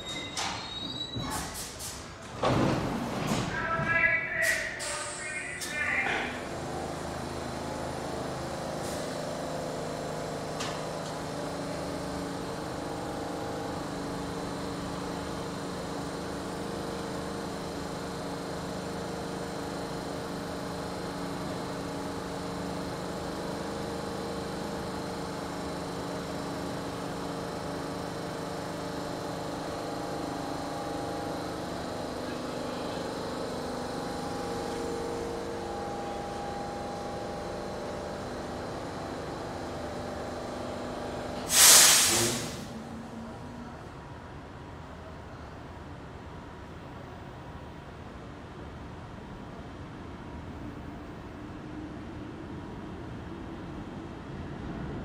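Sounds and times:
train hum with held tones: 0:00.0 - 0:55.0
hiss of released air: 0:01.4 - 0:02.1, 0:41.4 - 0:42.7.

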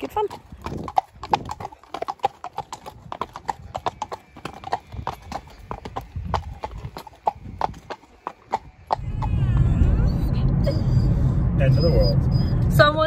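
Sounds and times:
horse hooves on tarmac: 0:00.0 - 0:09.8.

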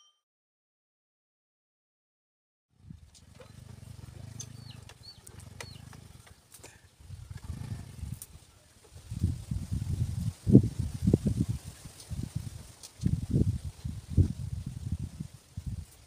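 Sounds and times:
distant motorcycle engine rumble: 0:02.7 - 0:16.0
bird chirps: 0:03.3 - 0:06.2.

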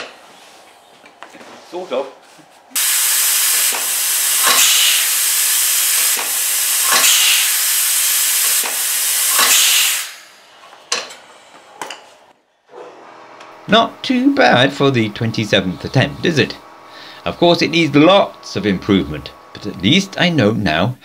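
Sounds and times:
sharp valve puffs: 0:02.8 - 0:10.4
air hissing: 0:02.8 - 0:11.4, 0:13.4 - 0:21.0.

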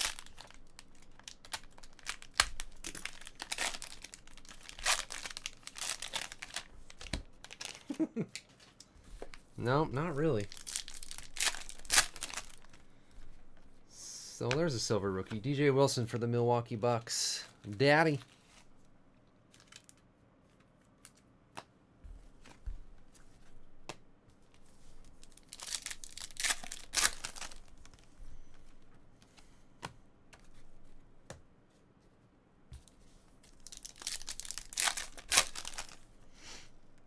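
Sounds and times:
wrappers tearing and crinkling: 0:00.0 - 0:08.0, 0:10.1 - 0:12.8, 0:19.5 - 0:20.0, 0:25.0 - 0:28.0, 0:33.5 - 0:36.0.

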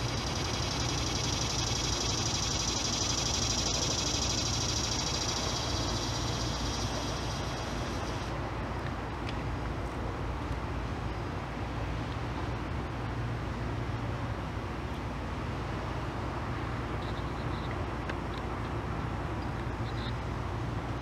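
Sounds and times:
faint high chirps: 0:00.0 - 0:08.3
low rumble with hiss: 0:00.0 - 0:21.0.

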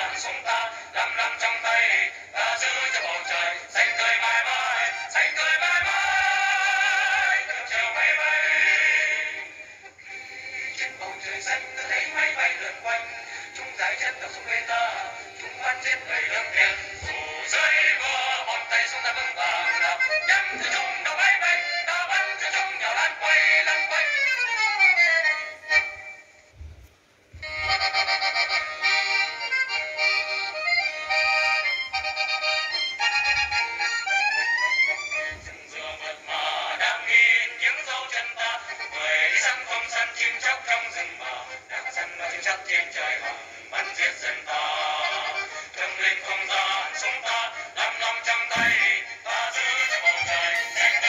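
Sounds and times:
ensemble singing with accompaniment: 0:00.0 - 0:51.0
instrumental accompaniment: 0:27.3 - 0:35.8, 0:48.4 - 0:51.0.

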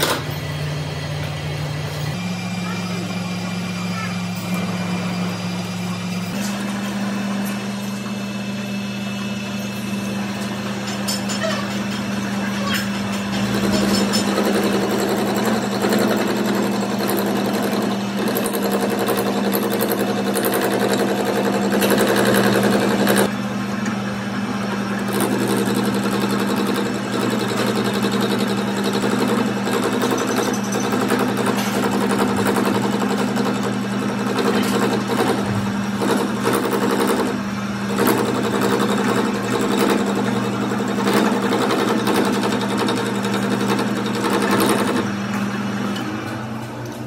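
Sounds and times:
lathe motor hum: 0:00.0 - 0:47.0.

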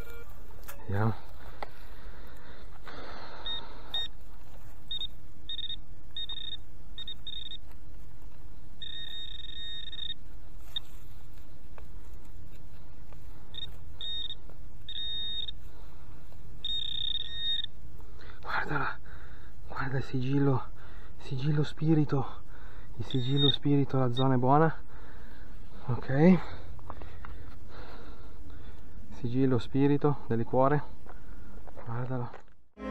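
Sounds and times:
metal detector beeping: 0:00.0 - 0:01.0, 0:02.9 - 0:07.7, 0:08.8 - 0:11.0, 0:13.5 - 0:15.7, 0:16.6 - 0:17.8, 0:23.0 - 0:24.4.

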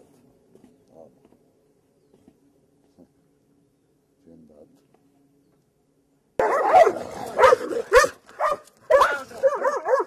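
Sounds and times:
dog barking: 0:06.4 - 0:10.0.

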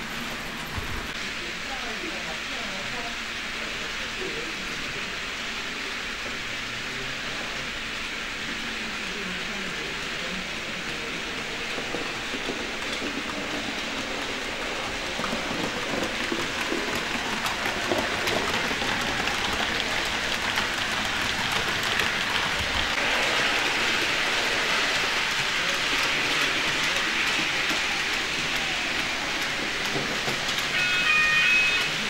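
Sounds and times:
model trains rattling on track: 0:00.0 - 0:32.0.

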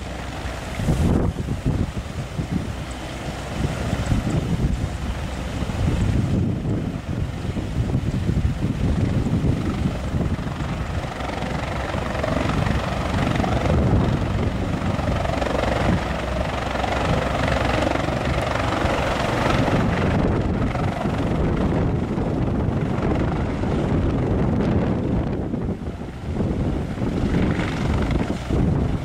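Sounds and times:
helicopter rotor and turbines: 0:00.0 - 0:29.0.

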